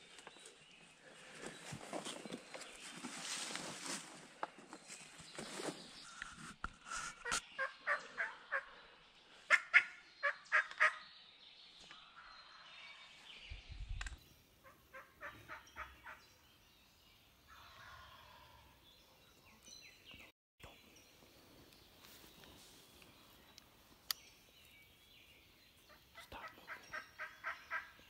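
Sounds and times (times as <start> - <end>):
wild turkeys calling: 7.2 - 8.8, 9.5 - 11.0, 14.6 - 16.2, 25.9 - 28.0.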